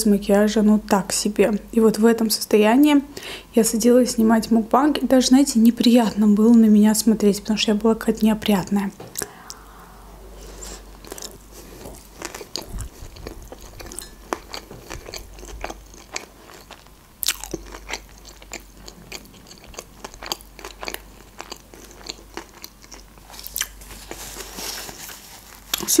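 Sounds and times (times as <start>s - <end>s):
chewing with wet crunches: 11.0s - 23.8s.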